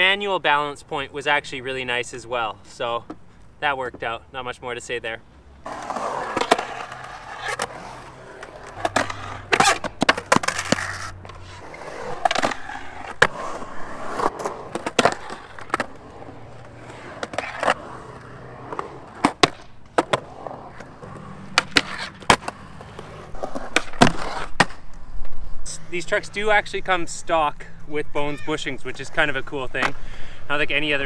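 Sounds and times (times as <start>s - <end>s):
skateboard clacking on concrete: 5.6s - 24.8s
skateboard wheels rumbling on concrete: 5.6s - 26.8s.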